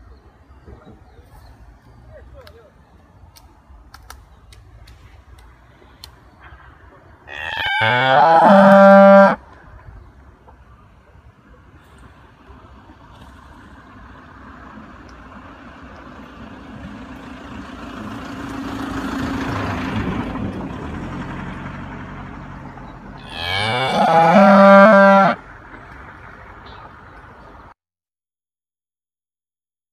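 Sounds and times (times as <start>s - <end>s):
autotuned cow moo: 7.3s - 9.4s, 23.2s - 25.4s.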